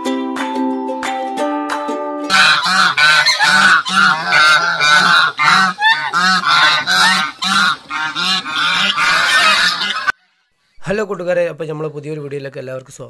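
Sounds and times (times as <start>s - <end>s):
geese honking: 2.3s - 10.2s.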